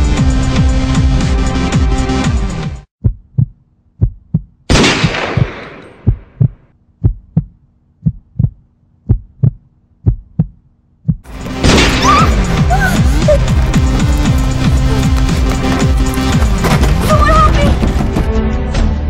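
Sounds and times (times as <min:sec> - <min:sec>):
music: 0:00.0 - 0:02.9, 0:11.3 - 0:19.0
heartbeat sound effect: 0:03.0 - 0:04.6, 0:05.4 - 0:11.3
gunshot sound effect: 0:04.7 - 0:06.2, 0:11.6 - 0:12.3.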